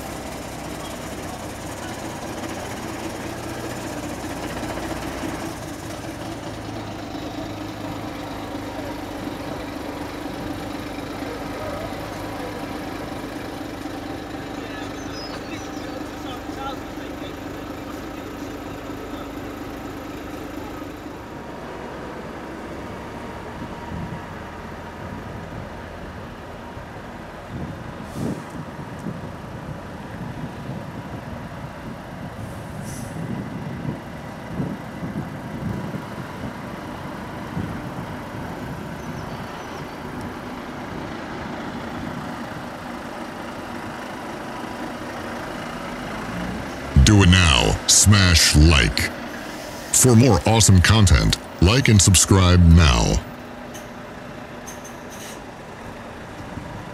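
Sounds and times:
heavy truck engine rumble: 0.0 - 56.9
air brakes hissing: 28.0 - 28.5, 32.5 - 33.2, 55.1 - 55.4.

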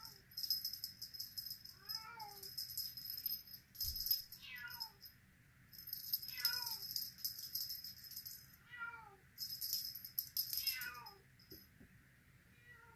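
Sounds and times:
cat toy rattling: 0.0 - 5.1, 5.8 - 8.4, 9.4 - 11.6.

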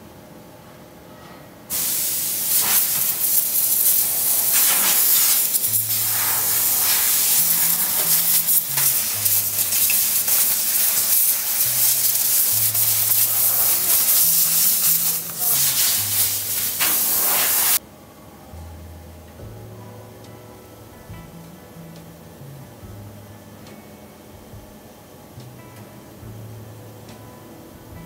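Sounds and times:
compressed air gun hissing: 1.7 - 17.8
background music bass line: 3.6 - 16.8, 18.4 - 28.0.

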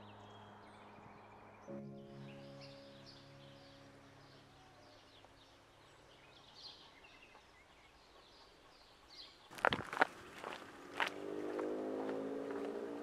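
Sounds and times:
low held music chord: 0.0 - 7.0
birds chirping: 0.0 - 13.0.

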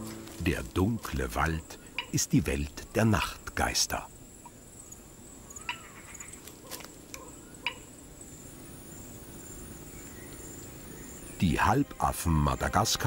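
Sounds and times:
high-pitched insect drone: 7.6 - 13.0.

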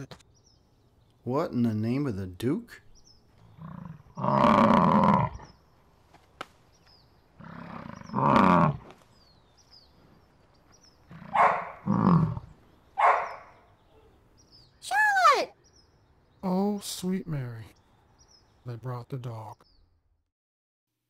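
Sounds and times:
faint birdsong: 0.0 - 20.3
bison bellowing: 3.5 - 5.6, 7.4 - 8.9, 11.1 - 12.6.

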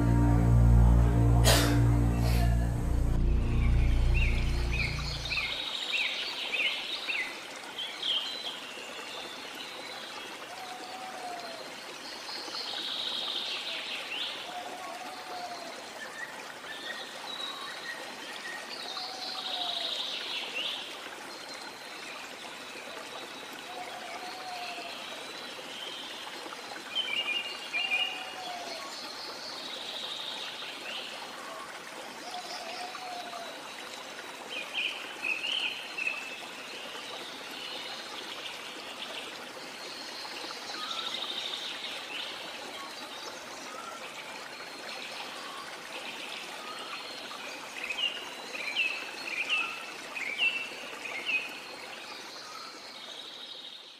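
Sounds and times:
short low bird call: 1.3 - 5.4
birds chirping and trilling: 1.8 - 5.7.

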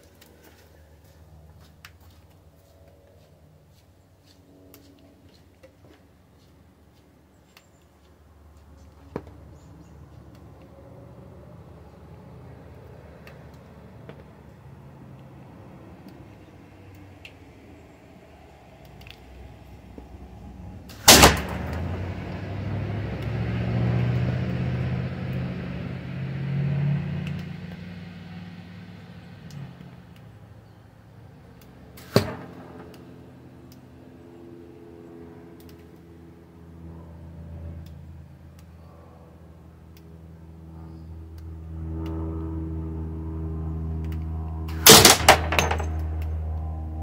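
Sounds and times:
passing vehicle engine hum: 0.0 - 47.0
steady low rumble: 8.2 - 26.1, 38.3 - 47.0
slingshot shot cracking on target: 20.9 - 22.2, 32.0 - 33.1, 44.7 - 46.2
light ticks: 35.6 - 36.1.

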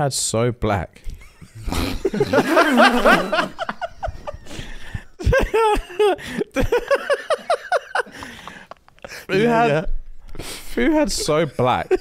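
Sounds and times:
men laughing: 1.1 - 9.8, 10.8 - 12.0.

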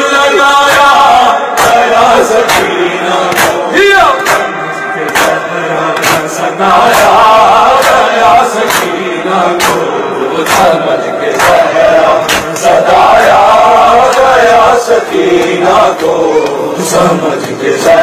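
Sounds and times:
men chanting together: 0.0 - 18.0.

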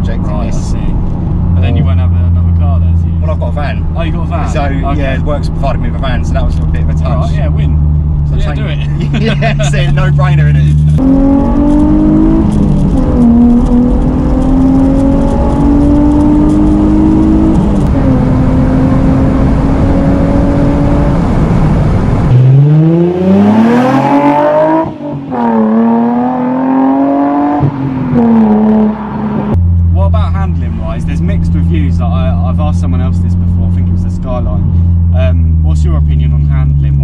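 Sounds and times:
car engine heard from cabin: 0.0 - 22.4
car accelerating hard: 0.1 - 29.6.

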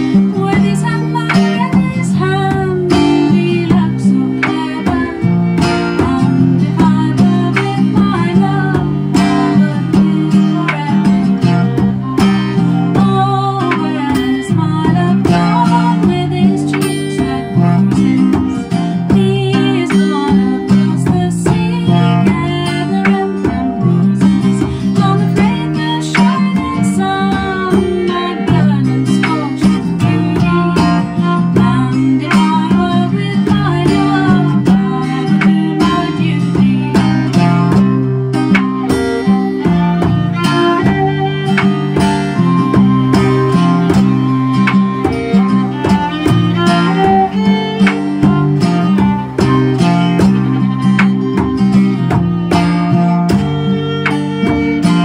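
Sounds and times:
bowed fiddle melody: 0.0 - 55.0
strummed acoustic guitar: 0.0 - 55.0.

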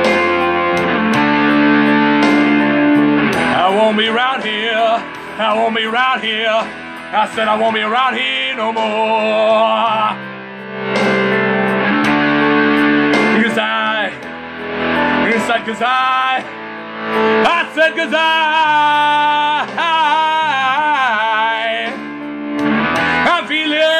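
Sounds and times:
blues-rock music with electric guitar: 0.0 - 23.9
man singing rock vocal: 3.3 - 10.3, 13.1 - 14.3, 15.0 - 23.9.

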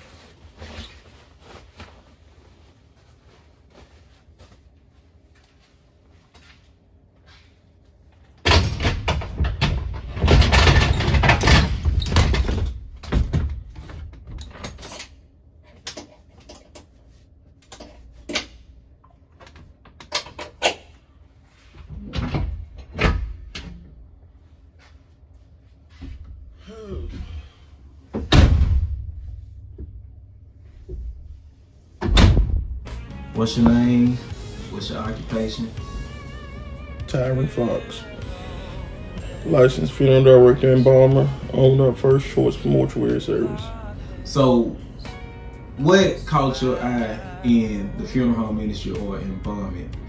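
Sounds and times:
cot handling shuffling: 0.0 - 7.6
knocks and clunks: 8.4 - 14.9.

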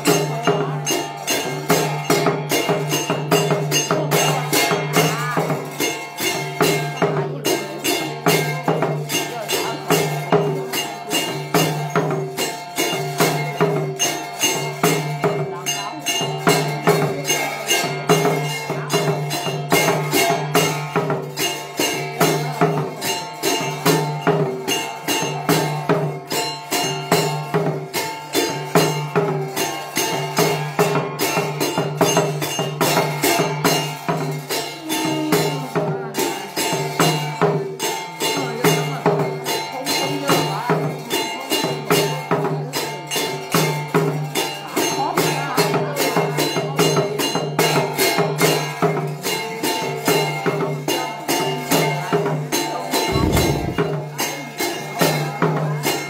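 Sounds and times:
rhythmic jingling rattle: 0.0 - 56.0
man chanting: 53.0 - 54.0.

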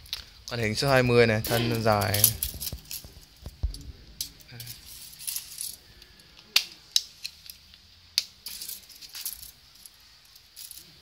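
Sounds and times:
tape measure rattling: 8.4 - 11.0.

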